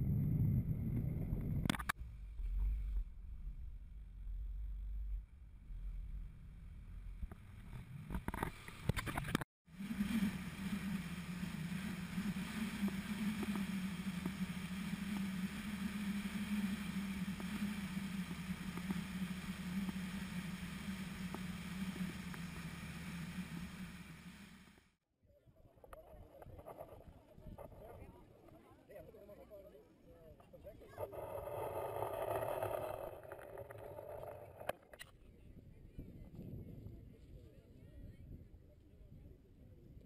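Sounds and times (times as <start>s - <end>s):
wind and road noise: 0.0s - 24.8s
car engine and tyres droning: 9.7s - 24.9s.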